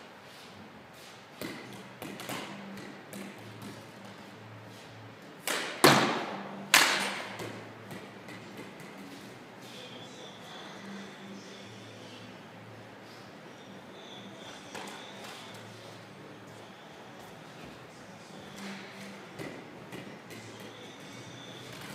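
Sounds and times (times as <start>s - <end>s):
sharp stick cracks echoing: 5.4s - 7.4s.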